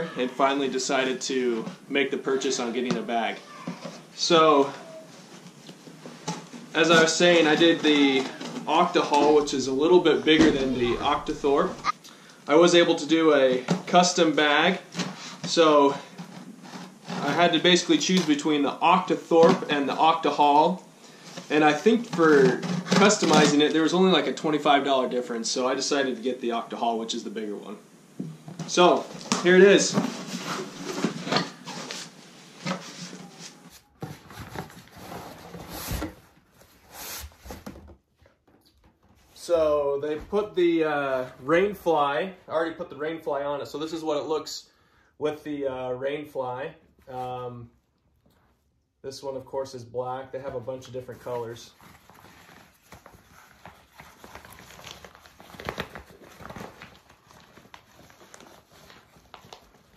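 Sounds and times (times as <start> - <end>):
fabric bag rustling and crinkling: 51.2 - 59.9.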